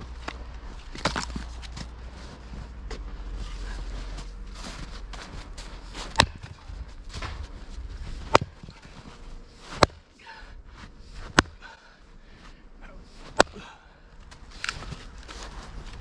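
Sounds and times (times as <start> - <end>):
maul cracking firewood: 0.1 - 1.9, 5.9 - 10.3, 11.2 - 12.0, 13.2 - 16.0.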